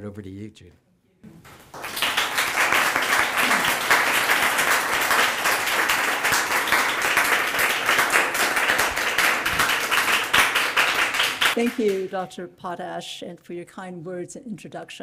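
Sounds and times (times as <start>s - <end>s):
audience applauding: 1.5s - 12.1s.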